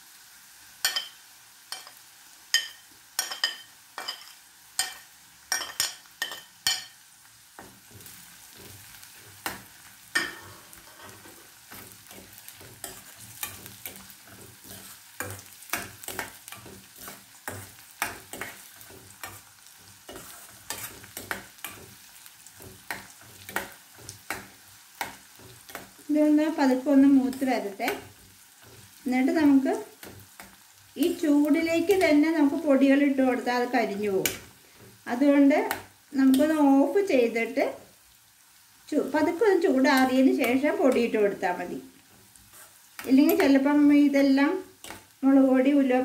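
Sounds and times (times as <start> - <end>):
spices sizzling in oil: 0.0 - 46.0
metal spoon clinking and scraping: 2.6 - 7.0, 9.4 - 19.4, 20.1 - 24.4.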